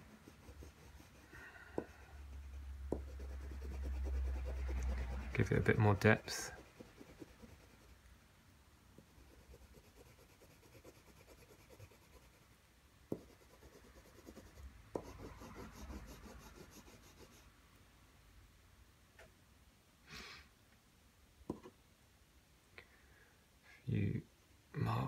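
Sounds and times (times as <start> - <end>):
graphite scratching on paper: 0.0 - 8.0, 9.0 - 12.5, 13.1 - 17.5.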